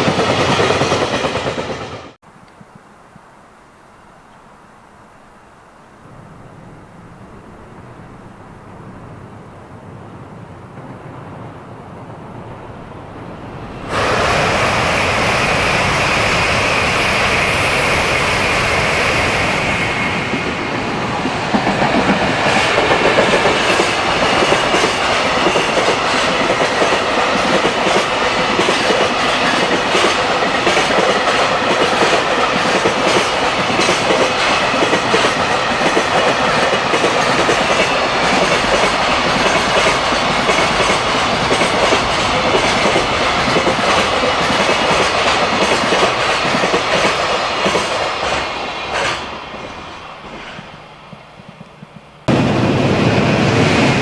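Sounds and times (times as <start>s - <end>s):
freight train passing: 0.0s - 2.2s, 5.5s - 54.0s
wheels clacking over rail joints: 20.1s - 52.2s.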